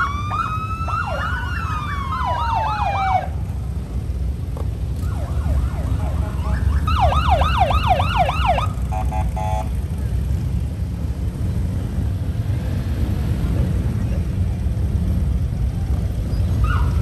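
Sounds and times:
motorcycle sirens yelping: 0.0s - 3.9s, 4.8s - 10.3s, 15.6s - 17.0s
motorcycle engines rumbling: 0.0s - 17.0s.

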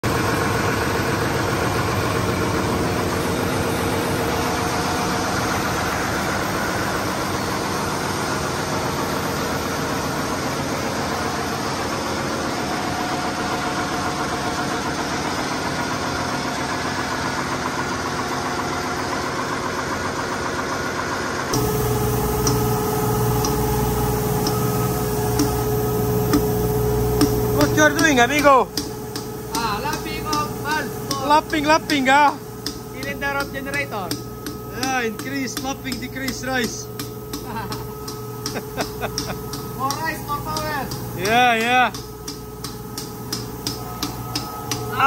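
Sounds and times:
diesel generator engine droning: 0.0s - 45.0s.

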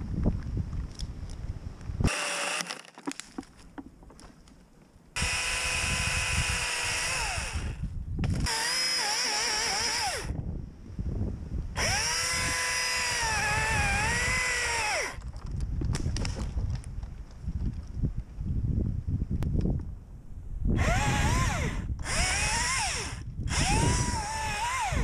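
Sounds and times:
electric chainsaw whining: 2.0s - 3.0s, 5.2s - 10.4s, 11.8s - 15.2s, 20.8s - 25.0s.

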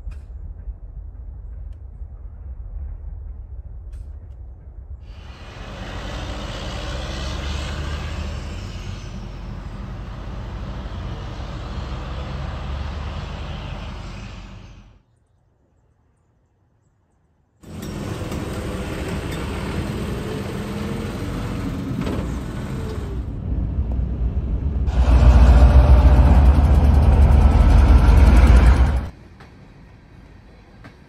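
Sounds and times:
diesel engine rumbling: 5.1s - 15.0s, 17.6s - 29.2s.

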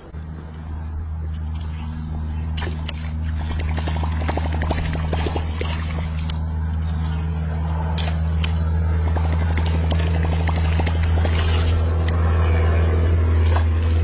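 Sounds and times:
low motor hum: 0.0s - 14.0s
fish splashing at water surface: 2.5s - 6.6s.

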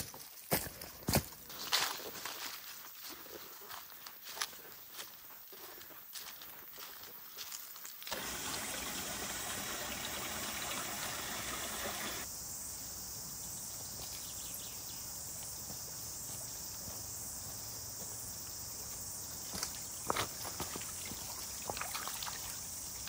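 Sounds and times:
water splashing down cascade: 8.1s - 12.3s.

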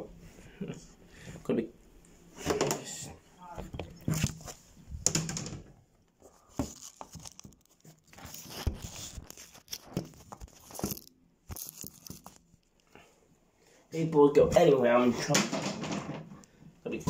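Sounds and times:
crinkling rustles: 6.1s - 12.9s.

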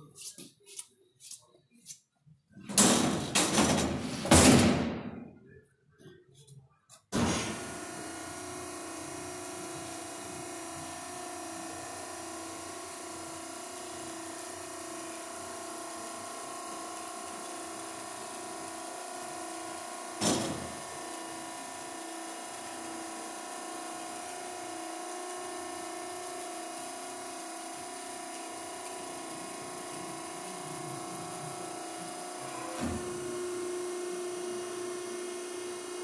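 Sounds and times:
hydraulic pump motor humming: 7.4s - 36.0s.

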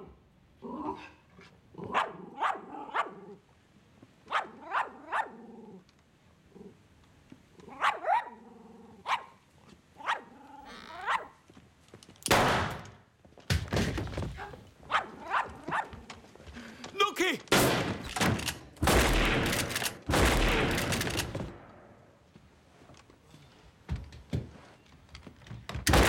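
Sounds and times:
dog barking: 1.8s - 3.3s, 4.3s - 5.4s, 7.7s - 8.4s, 9.0s - 9.4s, 10.0s - 10.3s, 11.0s - 11.4s, 14.4s - 16.0s
loud bangs: 17.4s - 22.0s.

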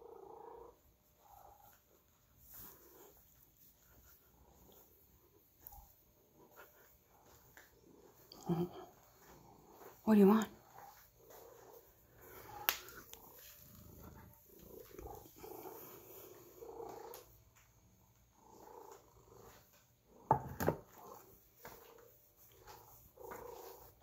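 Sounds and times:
cat purring: 0.0s - 24.0s.

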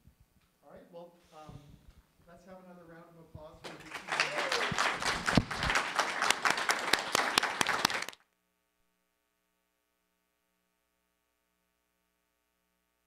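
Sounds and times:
audience applauding: 3.6s - 8.2s.

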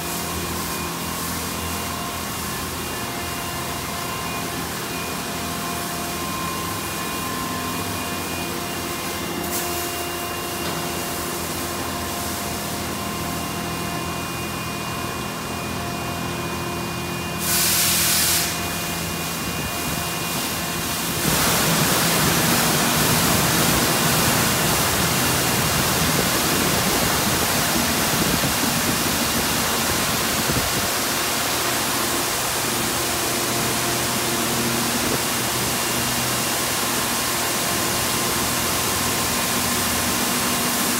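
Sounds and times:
pumps humming: 18.6s - 40.9s
water jets hissing: 20.5s - 40.8s.

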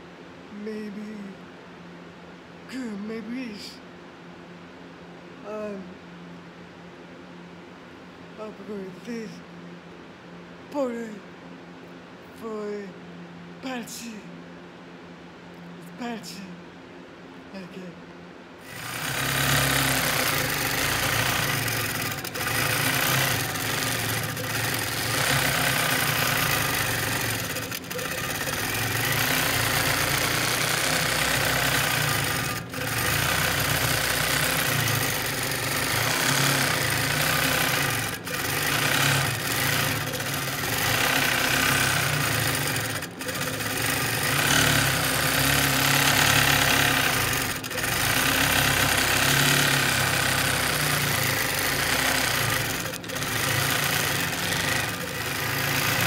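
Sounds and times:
quilting machine stitching: 18.6s - 56.0s.

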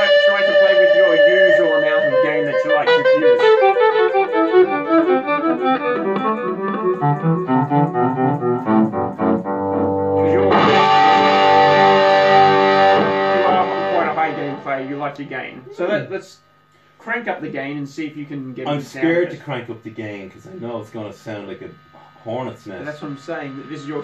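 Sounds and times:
electric guitar chord ringing: 0.0s - 15.8s
electric guitar notes: 0.0s - 15.9s.

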